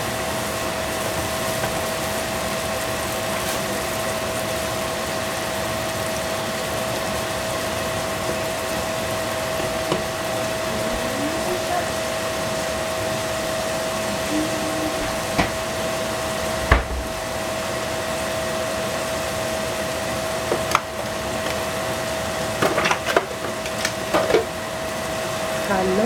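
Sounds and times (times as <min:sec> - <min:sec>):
mushrooms sizzling in frying pan: 0:00.0 - 0:26.0
steady hum: 0:08.7 - 0:20.4.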